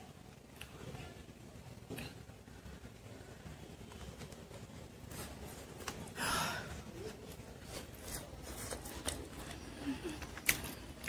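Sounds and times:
eating sounds: 8.1 - 11.0.

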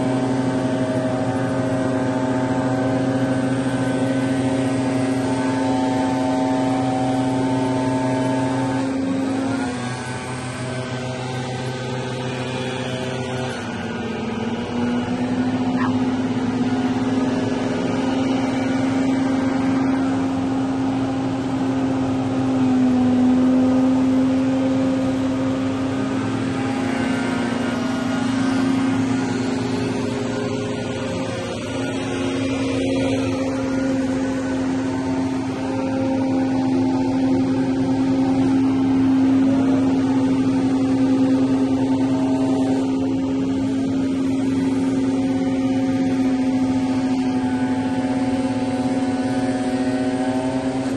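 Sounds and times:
leaf blowers droning: 0.0 - 50.9.

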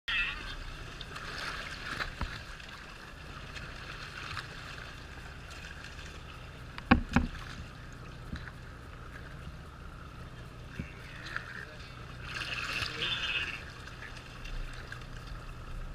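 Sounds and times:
water sloshing and splashing: 0.1 - 15.9
sharp knocks: 6.8 - 7.4.

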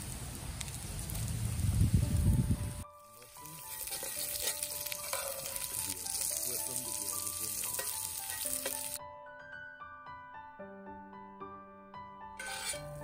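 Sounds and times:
vegetables sizzling in skillet: 0.0 - 9.0, 12.4 - 13.0
background music: 1.9 - 13.0
metal spatula stirring: 3.2 - 6.4, 7.0 - 9.0, 12.4 - 13.0.

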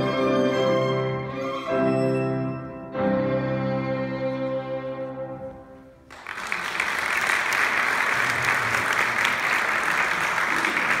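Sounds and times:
violin and piano chord: 0.0 - 5.8
audience applauding: 6.1 - 11.0.

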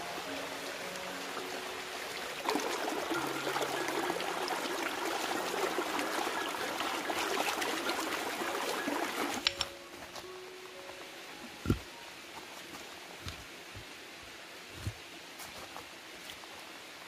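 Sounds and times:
stream water splashing over rock: 0.0 - 9.5.

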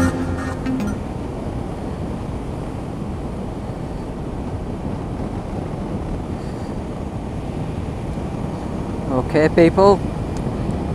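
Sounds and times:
electronic intro music: 0.0 - 1.2
wind rushing over microphone: 0.0 - 10.9.

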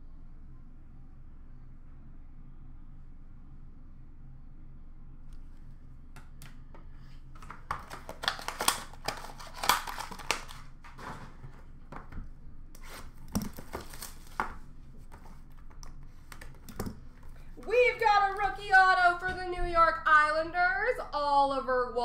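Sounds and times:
low steady hum: 0.0 - 22.0
card wrappers crinkling and tearing: 7.2 - 11.8, 12.8 - 17.6.

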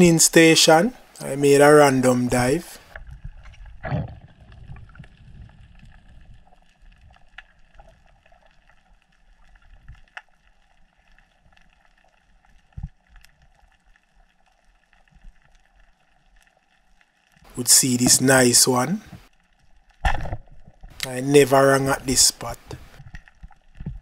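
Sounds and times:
underwater water rushing: 1.9 - 8.0
faint underwater clicks: 2.8 - 18.3, 22.4 - 24.0.

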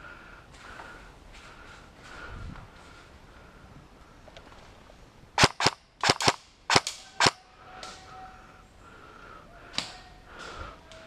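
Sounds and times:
airsoft gun shots: 5.4 - 7.4.

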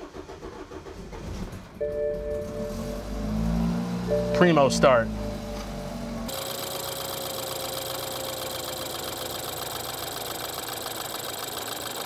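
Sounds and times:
car engine idling with ticking: 4.1 - 12.0.

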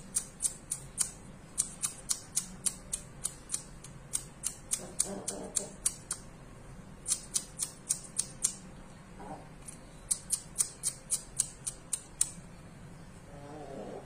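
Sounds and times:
rapid high-pitched clicking: 0.0 - 6.2, 7.1 - 8.6, 10.1 - 12.4
chickens clucking: 4.8 - 5.9.

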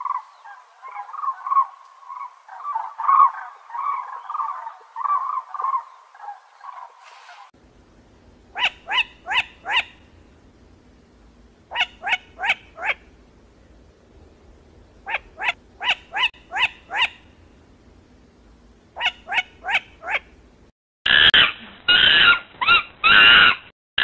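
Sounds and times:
cranes bugling: 0.9 - 7.6.

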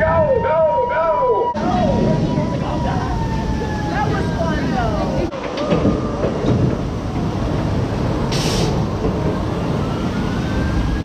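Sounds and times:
roller coaster wheels rumbling on rail: 0.0 - 11.0
hiss: 8.3 - 8.9.

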